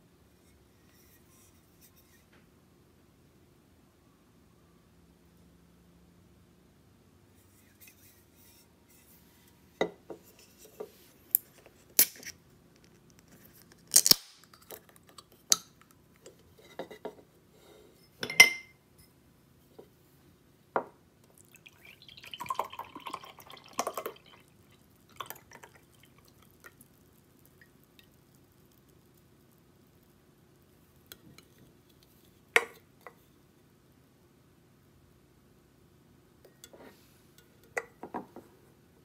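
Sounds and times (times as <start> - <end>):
coffee splashing into glass: 21.3 - 28.3.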